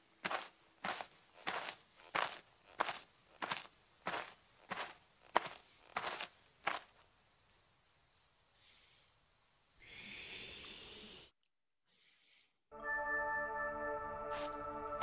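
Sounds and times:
cartoon footsteps: 0.0 - 7.0
cricket chirring: 0.0 - 10.3
music: 12.7 - 15.0.

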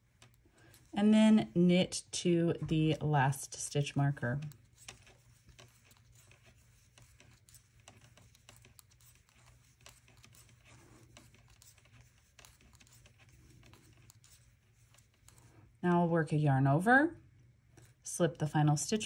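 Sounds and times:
knitting needles clicking: 0.0 - 1.0, 4.3 - 15.5
yarn scratching: 0.0 - 15.7.

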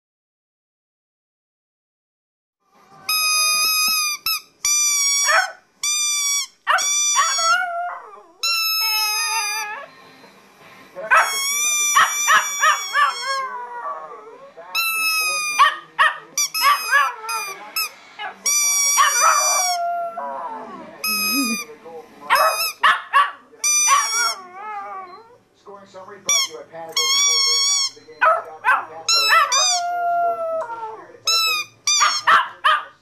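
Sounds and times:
squeaky toy squeaks: 3.1 - 7.6, 8.4 - 9.9, 11.1 - 13.7, 14.8 - 19.9, 21.0 - 21.7, 22.3 - 25.3, 26.3 - 30.1, 31.2 - 32.7
dog howling and yipping: 5.2 - 5.6, 6.6 - 9.9, 11.1 - 14.5, 15.2 - 17.6, 18.2 - 21.5, 22.4 - 25.4, 28.2 - 33.0.

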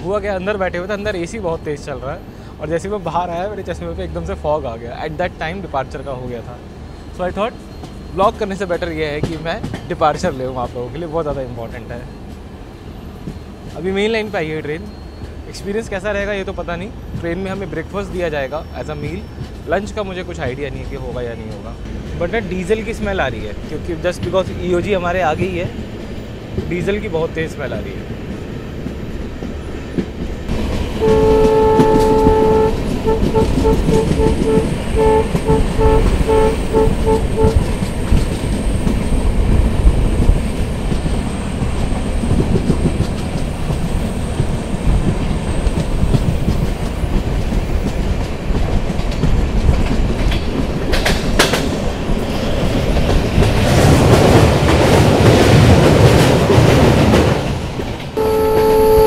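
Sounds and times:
train rumbling and clattering: 0.0 - 59.0
locomotive horn blasts: 31.0 - 37.8, 58.2 - 59.0.

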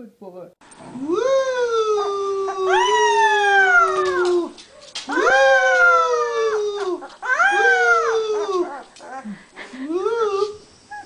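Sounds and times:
puppy howling: 0.9 - 9.3
man howling: 0.9 - 10.6.

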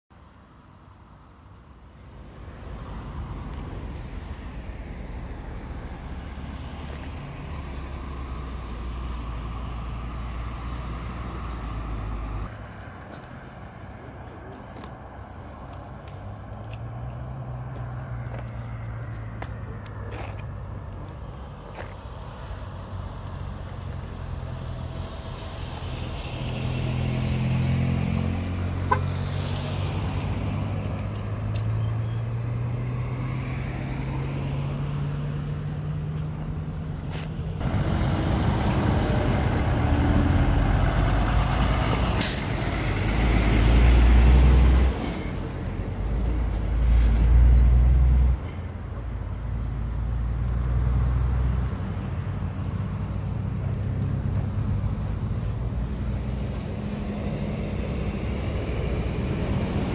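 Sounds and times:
road noise rushing: 0.1 - 59.9
truck engine droning: 33.7 - 59.9.

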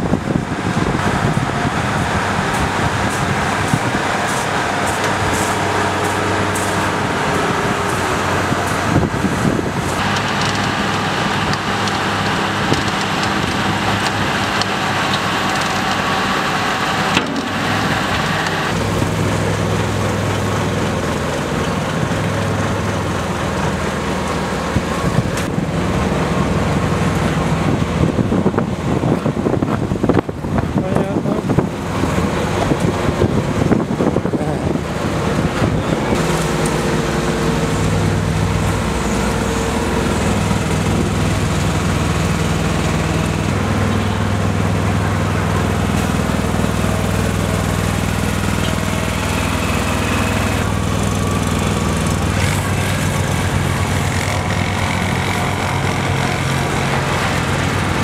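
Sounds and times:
diesel engines running: 0.0 - 58.0.

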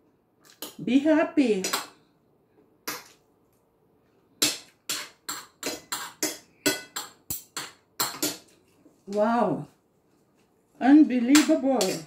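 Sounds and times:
cutlery clinking on a plate: 4.4 - 8.5.

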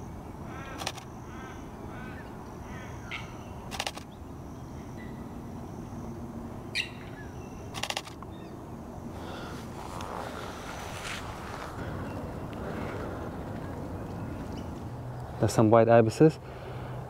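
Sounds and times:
small birds chirping: 0.5 - 5.3, 6.7 - 15.7
camera shutter clicks: 0.8 - 1.1, 3.7 - 4.1, 7.7 - 8.2.

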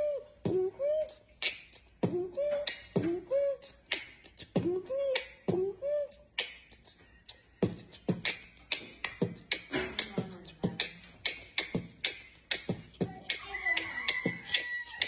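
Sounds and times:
beatbox mouth clicks and pops: 0.4 - 15.0.

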